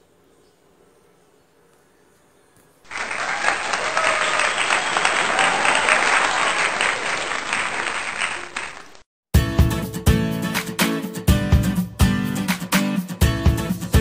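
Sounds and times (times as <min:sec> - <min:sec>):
crowd applause: 0:02.9 - 0:09.0.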